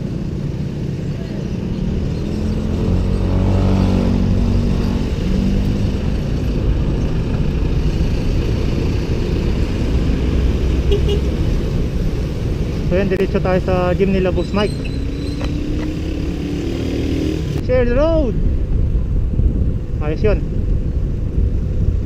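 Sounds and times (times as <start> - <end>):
road rumble: 0.0 - 22.0
wind on microphone: 0.0 - 22.0
vehicle engine passing: 1.7 - 12.8, 13.9 - 17.6.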